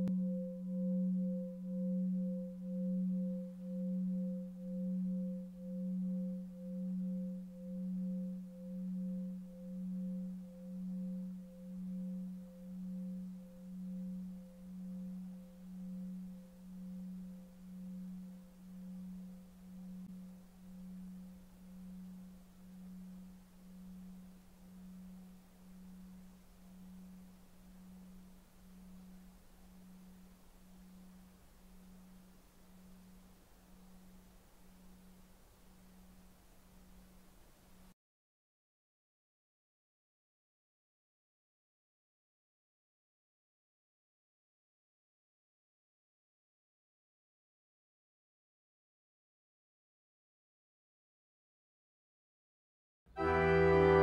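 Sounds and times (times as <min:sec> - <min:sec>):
singing bowl ringing: 0:00.0 - 0:33.2.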